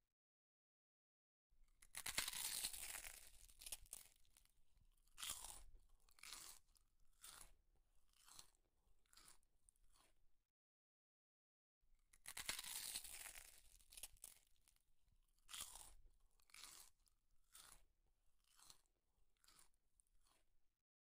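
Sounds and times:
wet crunching and chewing: 1.8 - 10.2, 12.1 - 20.6.

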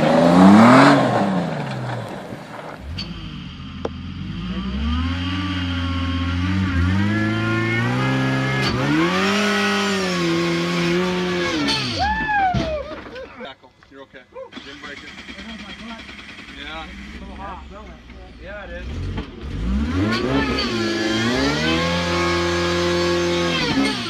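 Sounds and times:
supercharger whine: 0.0 - 12.1
engine revving: 0.0 - 12.2, 14.5 - 24.0.

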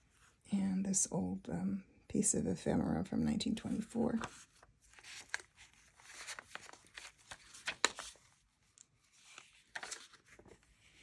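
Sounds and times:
paper crinkling: 4.2 - 11.0
paper rustling and sliding: 4.2 - 11.0.

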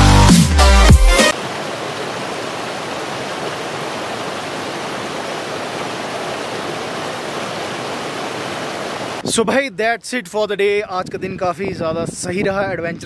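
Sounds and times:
stream rushing over boulders: 1.2 - 9.2.

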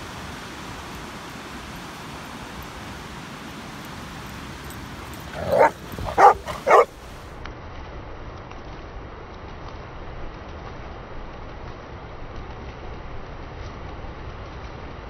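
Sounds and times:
steady background hiss: 0.0 - 7.4
dog barking: 5.3 - 7.0.

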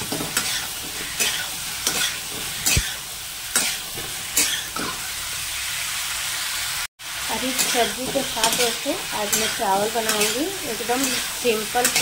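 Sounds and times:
vegetables sizzling in pan: 0.0 - 12.0
spatula scraping pan: 7.5 - 12.0.

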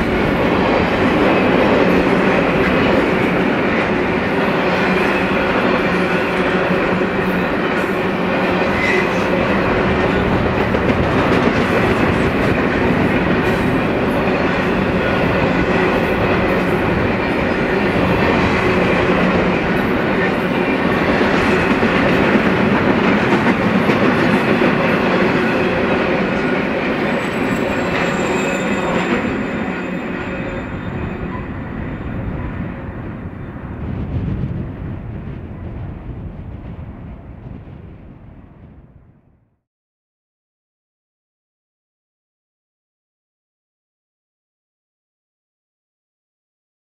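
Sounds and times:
clattering clicks of rail cars: 0.0 - 32.8
freight train wheels rumbling: 0.0 - 39.4.

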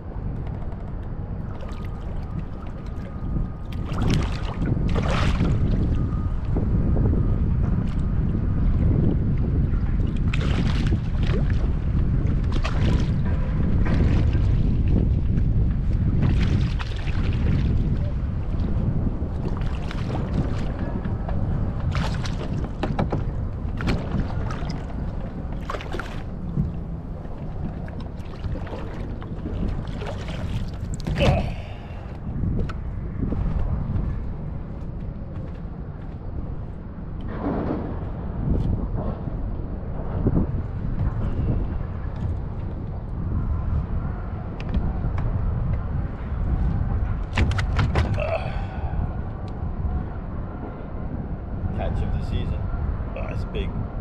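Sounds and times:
wind on microphone: 0.0 - 54.0
water lapping against kayak hull: 1.4 - 6.1, 8.8 - 34.1, 46.5 - 49.5.

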